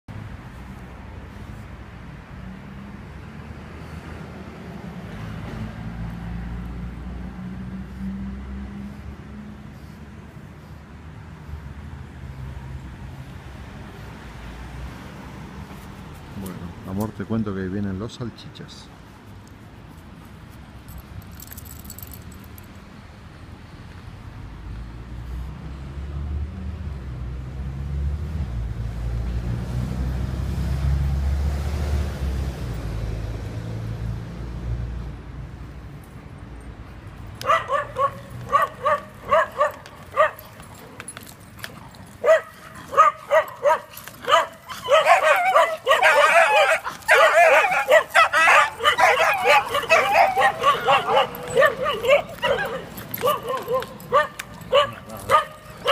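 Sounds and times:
small dogs barking: 37.4 - 41.1, 41.7 - 55.9.

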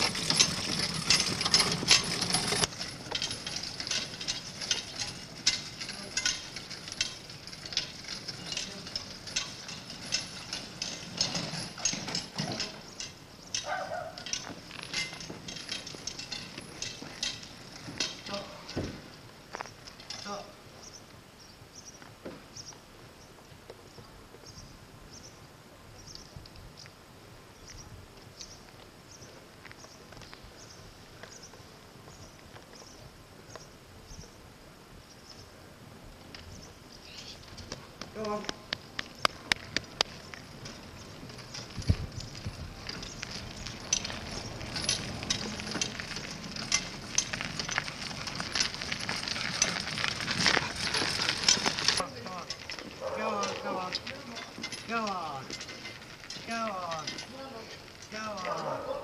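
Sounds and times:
clicks and clinks of cart chains: 0.0 - 20.5, 36.3 - 59.0
cart wheels rolling over tarmac: 0.0 - 59.0
faint outdoor background noise: 0.0 - 59.0
small bird chirping: 20.8 - 27.0, 36.5 - 37.5.

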